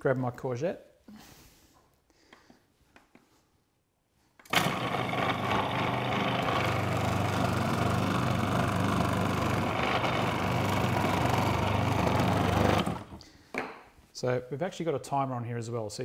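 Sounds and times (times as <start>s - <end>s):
food processor motor running: 4.4s - 13.2s.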